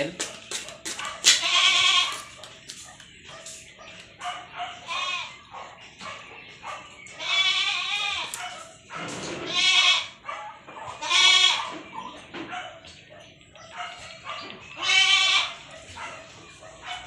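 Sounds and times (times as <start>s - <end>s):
goat bleating: 1.3s - 2.2s, 4.8s - 5.4s, 7.2s - 8.4s, 9.4s - 10.2s, 11.0s - 11.7s, 14.8s - 15.7s.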